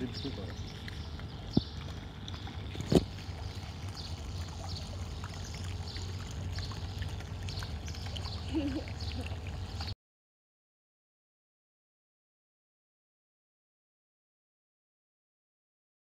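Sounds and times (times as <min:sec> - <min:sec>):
steady low rumble: 0:00.0 - 0:10.0
water splashing and lapping: 0:00.0 - 0:10.0.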